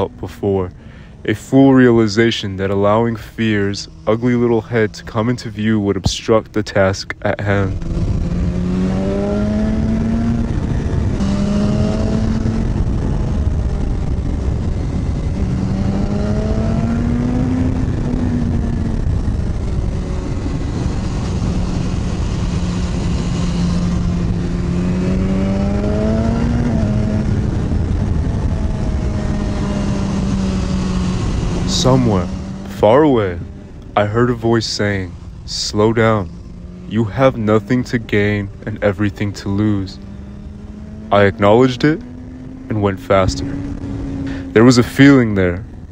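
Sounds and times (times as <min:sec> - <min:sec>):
motorcycle engine revving: 0:00.0 - 0:45.9
wind noise on microphone: 0:07.6 - 0:32.7.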